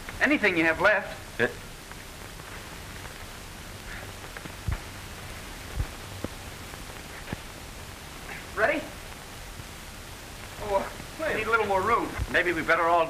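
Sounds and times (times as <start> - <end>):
film soundtrack hiss: 0.0 - 13.0
low thumps: 1.2 - 11.2.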